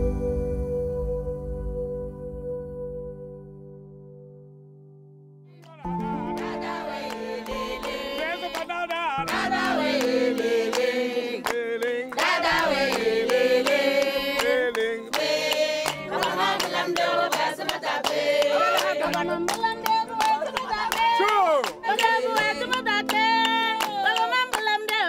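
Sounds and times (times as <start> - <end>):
hand claps: 5.6 - 25.0
group of voices singing: 5.8 - 25.0.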